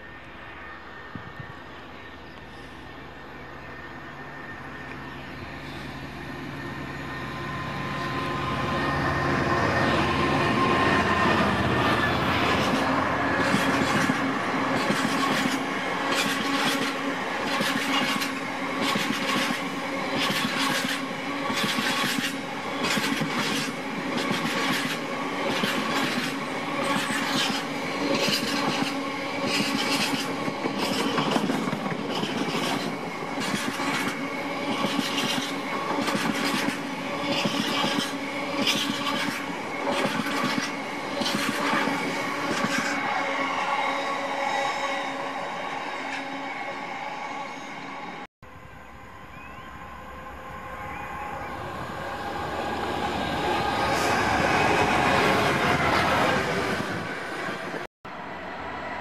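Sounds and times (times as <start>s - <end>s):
diesel locomotive engine: 0.0s - 59.0s
train wheels clicking over rail joints: 12.4s - 43.0s.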